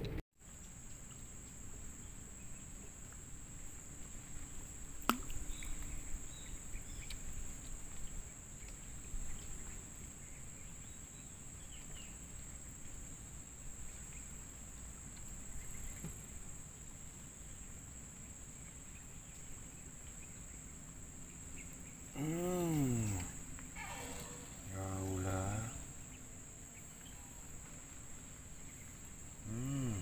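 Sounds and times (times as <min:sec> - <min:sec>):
insects droning: 0:00.4 - 0:30.0
faint bird chirps: 0:04.4 - 0:13.0, 0:18.6 - 0:30.0.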